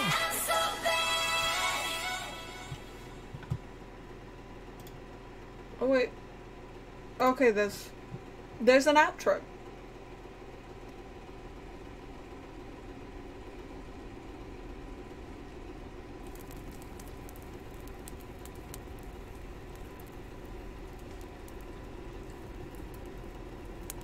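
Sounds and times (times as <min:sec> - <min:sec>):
faint crackling: 0:16.2 - 0:24.0.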